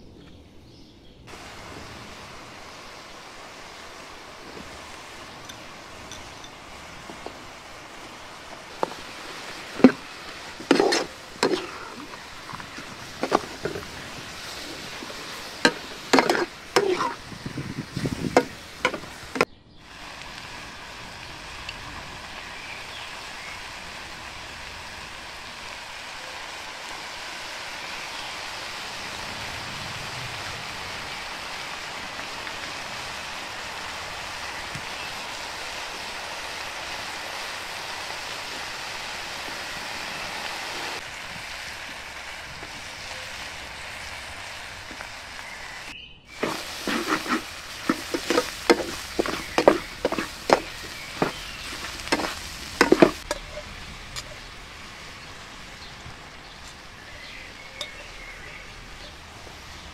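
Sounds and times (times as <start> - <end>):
food sizzling in pan: 1.3 - 59.9
metal ladle scraping steel pan: 10.6 - 12.2, 14.5 - 17.2, 46.4 - 53.7.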